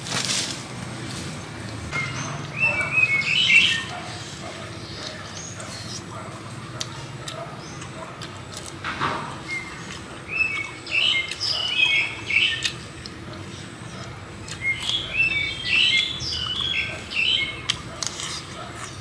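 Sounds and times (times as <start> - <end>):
bird chirping: 1.4 - 6.3, 9.4 - 19.0.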